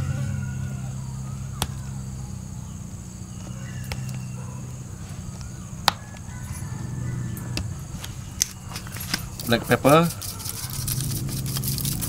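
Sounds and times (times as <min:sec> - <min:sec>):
steady low hum: 0:00.0 - 0:12.0
metal spoon dabbing in foil tray: 0:08.8 - 0:12.0.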